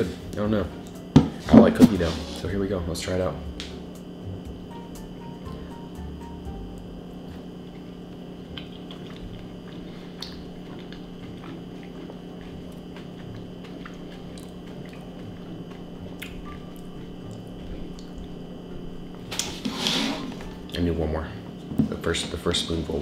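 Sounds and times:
steady low hum: 0.0s - 23.0s
man chewing wet food: 6.6s - 19.6s
small mouth clicks: 16.2s - 16.4s.

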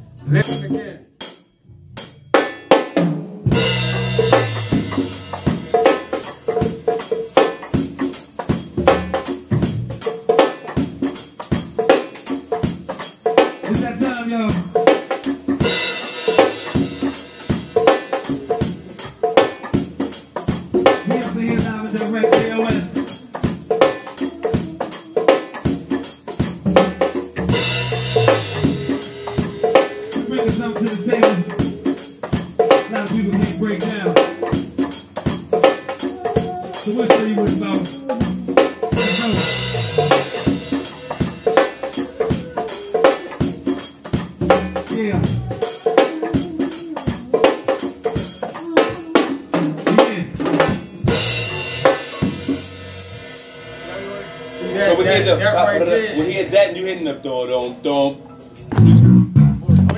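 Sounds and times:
drum kit groove: 0.0s - 56.5s, 58.6s - 59.9s
congas playing: 2.0s - 59.9s
steady held note: 27.5s - 34.4s.

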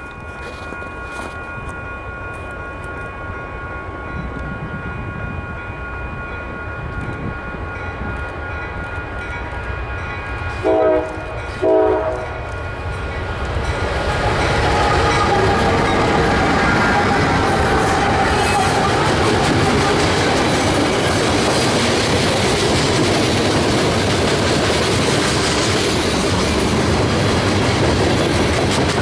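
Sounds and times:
train engine and wheel rumble: 0.0s - 29.0s
train horn blasts: 10.5s - 12.5s, 14.5s - 20.2s.

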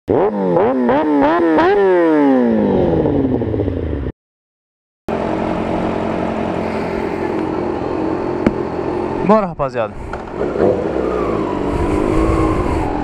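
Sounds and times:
engine running steadily: 5.1s - 13.0s
engine revving and winding down: 10.0s - 13.0s.

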